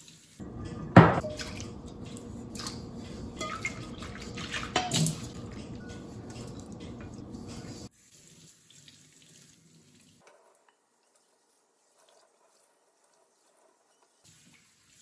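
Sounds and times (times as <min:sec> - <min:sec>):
hands rubbing wet surface: 0:00.4 - 0:07.9.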